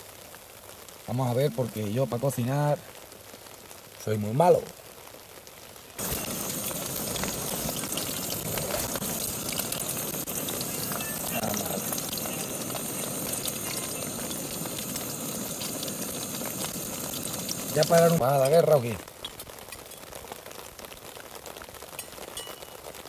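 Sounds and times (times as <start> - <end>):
eggs sizzling in oil: 0.0 - 23.0
gas stove hissing: 6.0 - 19.0.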